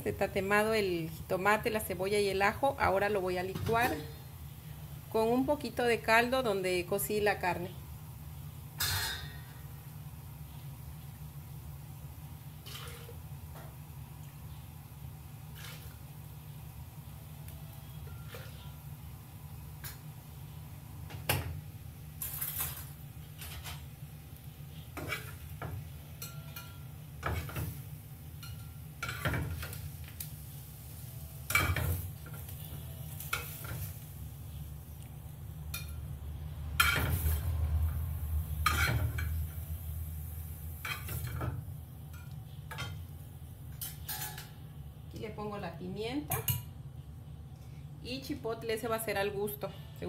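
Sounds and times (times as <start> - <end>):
utensils and dishes clinking: 26.1 - 27.8, 43.7 - 44.6.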